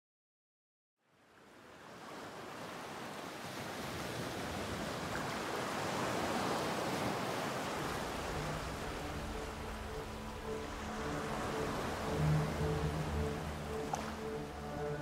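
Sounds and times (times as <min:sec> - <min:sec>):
surf-like whoosh: 0:04.5 - 0:15.0.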